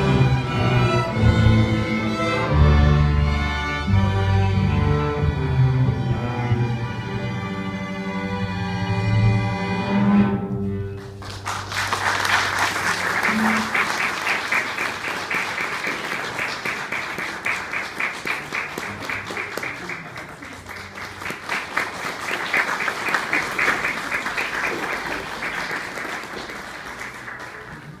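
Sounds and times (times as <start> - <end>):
audience applauding: 11.0 - 28.0.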